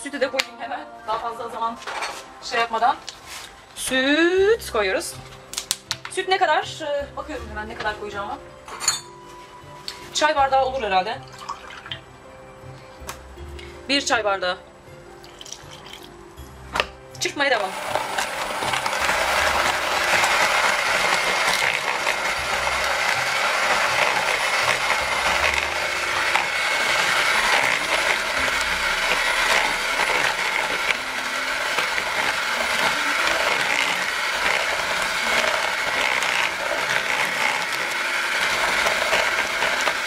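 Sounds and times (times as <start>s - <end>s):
electric hand mixer whisking: 17.4s - 40.0s.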